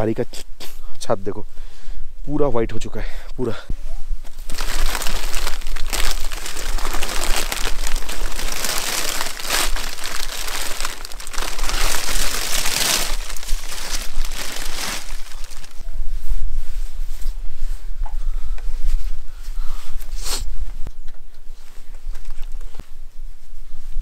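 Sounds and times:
plastic sheet crinkling and rustling: 0:04.3 - 0:15.8.

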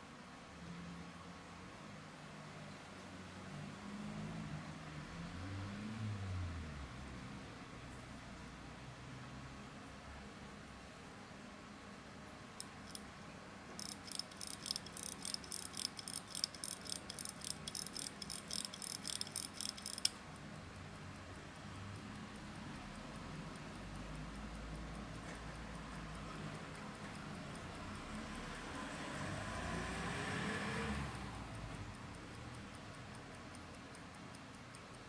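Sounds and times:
pocket watch clicking rapidly: 0:12.6 - 0:13.1, 0:13.7 - 0:35.0.

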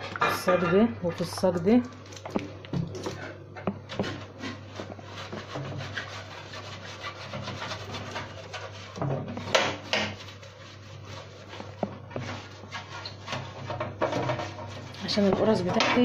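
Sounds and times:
pastry brush rubbing metal tray: 0:03.9 - 0:16.0.

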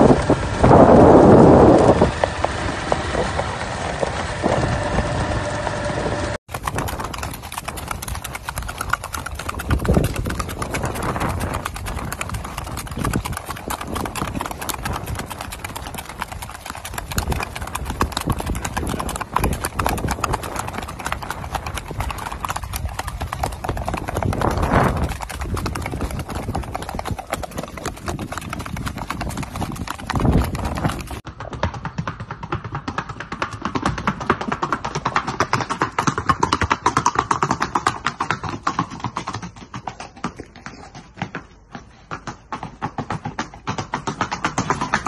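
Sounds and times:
horse hooves clip-clopping: 0:00.0 - 0:45.0.

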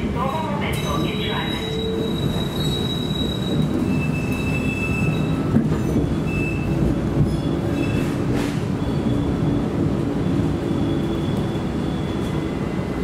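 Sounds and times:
rail car wheels rumbling: 0:00.0 - 0:13.0
high wheel squeals: 0:01.4 - 0:08.2.

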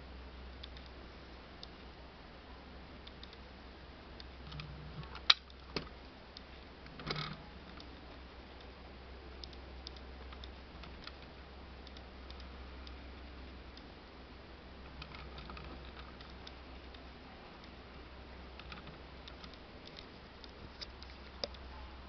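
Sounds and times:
model car clicking on wood: 0:18.6 - 0:20.1.

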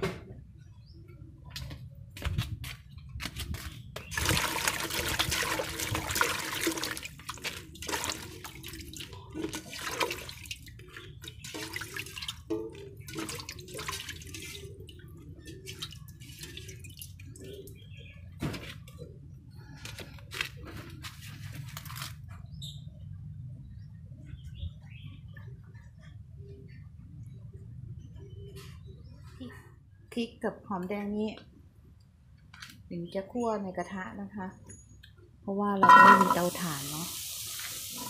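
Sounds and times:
water splashing in metal pot: 0:04.1 - 0:17.6, 0:35.8 - 0:38.0
water dripping: 0:04.1 - 0:17.9, 0:35.8 - 0:38.0.

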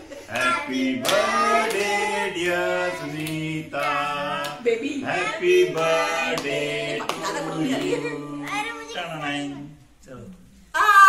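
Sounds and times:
group singing without instruments: 0:00.0 - 0:09.9
hand claps: 0:00.3 - 0:02.0, 0:03.2 - 0:04.6.

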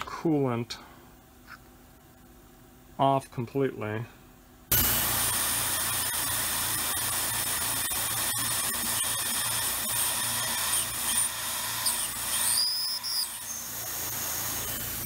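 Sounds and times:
mill spindle drilling metal: 0:04.7 - 0:15.0
drill squeals: 0:05.6 - 0:15.0.

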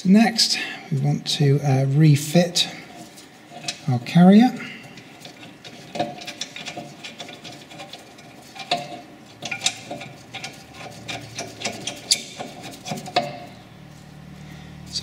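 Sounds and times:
metal clicks and rattles: 0:02.9 - 0:03.9, 0:04.8 - 0:13.6.

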